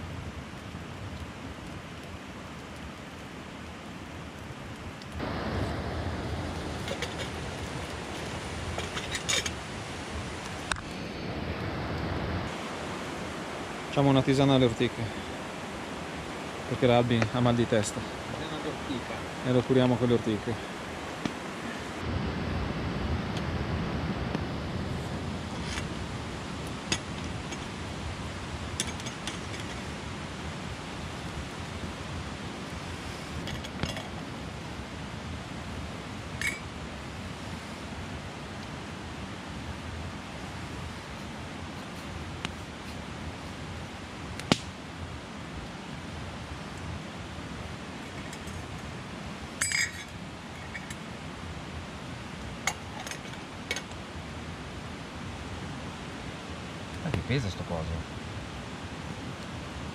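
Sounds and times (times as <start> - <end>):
campfire clicks: 0.0 - 12.9, 13.9 - 22.0, 24.2 - 31.8, 32.6 - 34.6, 41.2 - 44.8
steady outdoor hiss: 0.0 - 59.9
stream rushing over rocks: 0.0 - 59.9
metal clinks against steel mug: 49.6 - 50.1.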